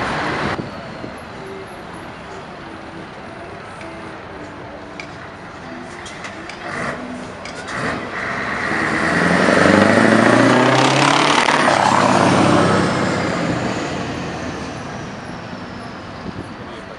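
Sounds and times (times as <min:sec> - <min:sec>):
diesel truck driving past: 0:06.4 - 0:16.9.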